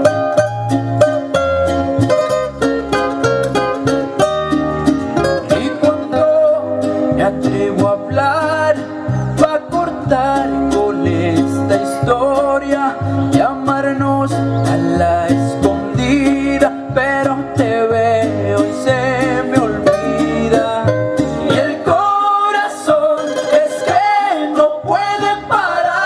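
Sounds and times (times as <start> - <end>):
plucked guitar over bass: 0.0 - 26.0
man singing: 5.3 - 26.0.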